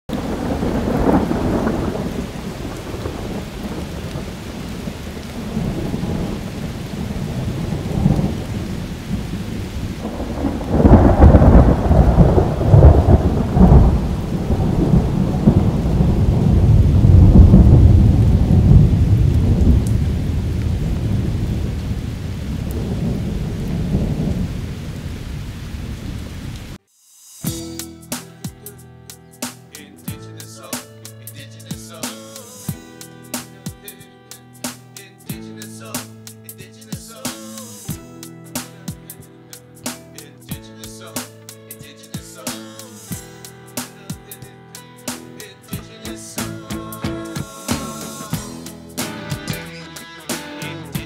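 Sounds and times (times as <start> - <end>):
rolling thunder: 0.1 - 26.7
steady rain: 0.1 - 26.8, 46.2 - 51.0.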